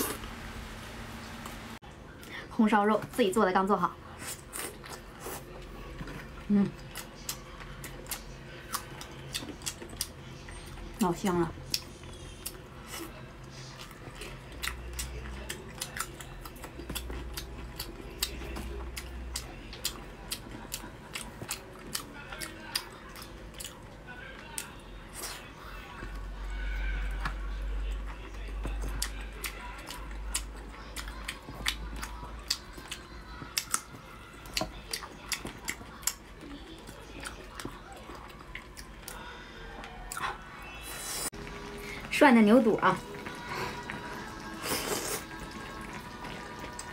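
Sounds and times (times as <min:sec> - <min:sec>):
wet chewing and smacking: 0:04.3 - 0:10.9, 0:11.7 - 0:26.2, 0:26.9 - 0:40.5
wet chewing and lip smacks: 0:28.8 - 0:39.3.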